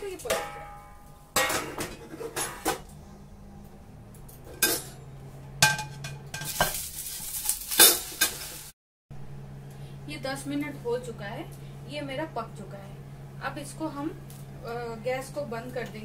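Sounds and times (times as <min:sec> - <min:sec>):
metal pan and plate clanking: 0:00.2 - 0:02.9, 0:04.5 - 0:08.6.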